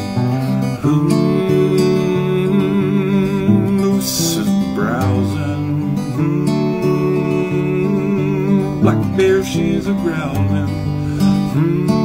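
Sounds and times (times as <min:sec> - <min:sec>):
strummed acoustic guitar song: 0:00.0 - 0:12.0.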